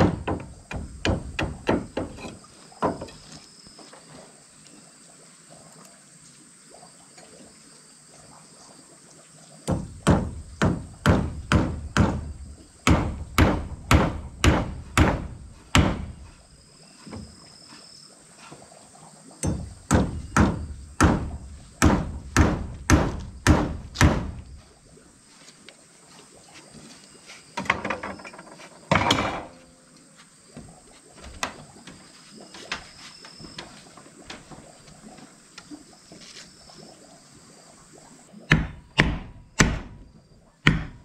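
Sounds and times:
hammer knocking on wooden block: 0.0 - 3.2, 9.7 - 12.3, 12.9 - 16.1, 19.4 - 24.4, 38.5 - 39.9, 40.6 - 41.0.

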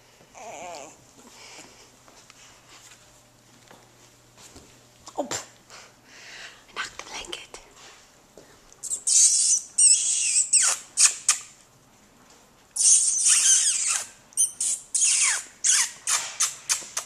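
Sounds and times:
puppies squealing and yelping: 8.8 - 11.4, 12.8 - 16.7.

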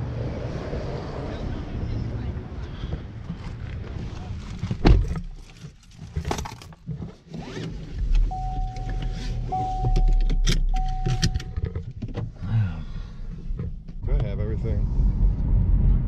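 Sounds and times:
handling clicks and rustles: 3.3 - 12.4
car engine running: 7.9 - 14.8.

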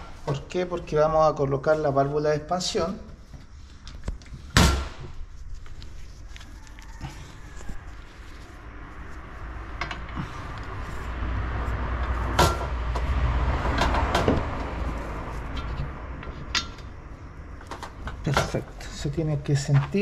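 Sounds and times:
vehicle passing: 7.0 - 19.5
metal parts clicking and tapping: 15.5 - 16.9.

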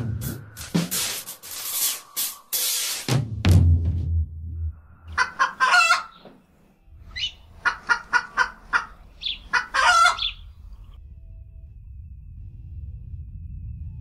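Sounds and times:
chicken-like clucking calls: 5.0 - 6.4, 7.1 - 10.6.

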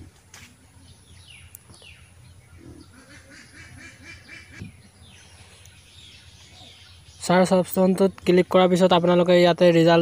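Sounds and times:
bird calls: 0.1 - 9.4.

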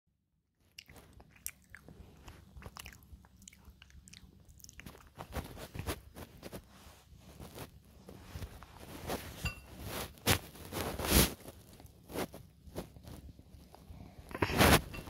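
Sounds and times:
cat chewing food: 0.7 - 5.8.

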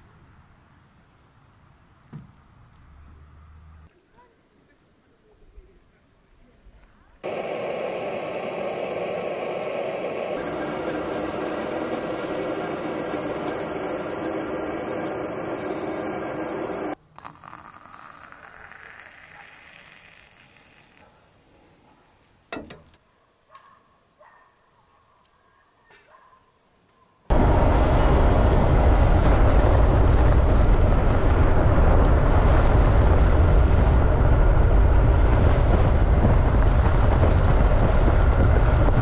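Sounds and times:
steady rushing noise: 7.2 - 17.0, 27.3 - 39.0
water pouring into coffee maker: 10.3 - 21.0.

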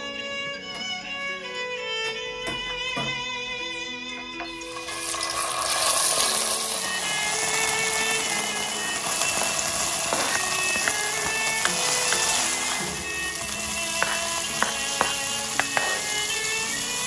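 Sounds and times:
background music: 0.0 - 17.0
garlic sizzling in oil: 4.6 - 17.0.

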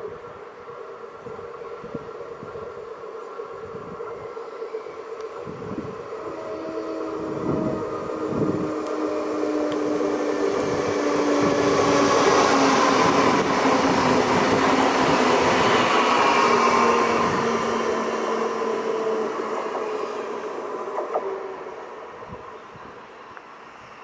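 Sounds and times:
train wheels rushing past: 5.4 - 22.4
electric traction drive humming: 5.5 - 20.2.

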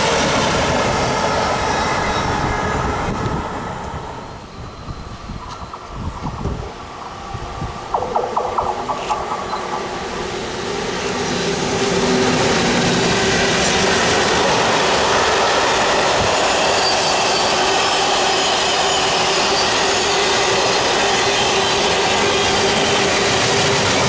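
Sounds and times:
electric freight train passing: 0.0 - 24.0
steady tone: 4.2 - 12.2.

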